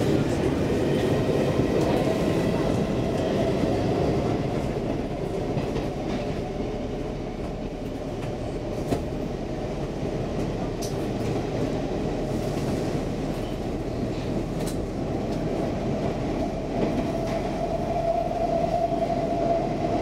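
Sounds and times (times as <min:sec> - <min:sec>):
train wheels rumbling on rails: 0:00.0 - 0:20.0.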